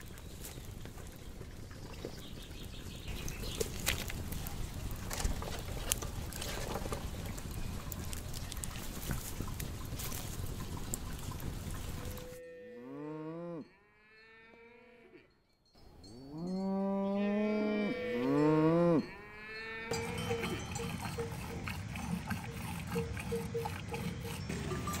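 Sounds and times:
cattle mooing: 0:12.2 - 0:15.2, 0:16.3 - 0:24.9.

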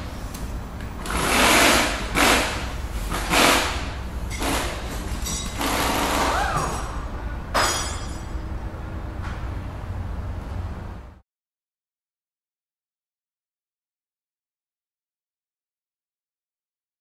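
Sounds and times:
steady low hum: 0:00.0 - 0:11.2.

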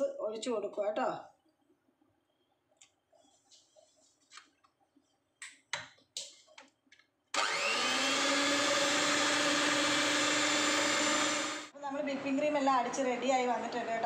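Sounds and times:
electric hand mixer whipping cream: 0:07.4 - 0:11.7.

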